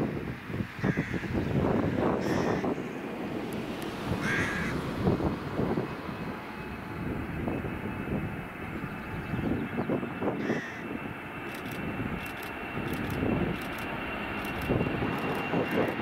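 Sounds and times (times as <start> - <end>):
distant jet engine noise: 0.0 - 16.0
wind buffeting microphone: 0.0 - 16.0
thin steady whine: 1.6 - 16.0
bird calling: 4.2 - 4.8, 10.4 - 10.9.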